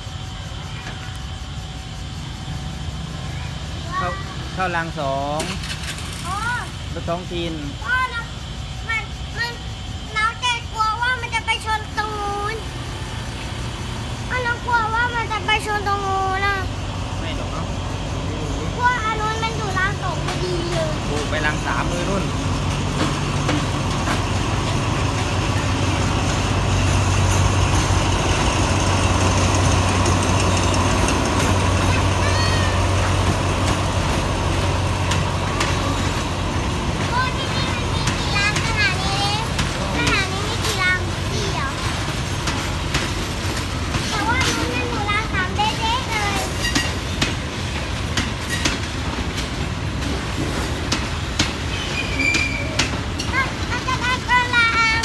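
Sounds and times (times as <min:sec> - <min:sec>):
diesel locomotive engine drone: 0:00.0 - 0:55.0
train rolling slowly: 0:00.0 - 0:55.0
train wheels clacking on rail joints: 0:17.8 - 0:55.0.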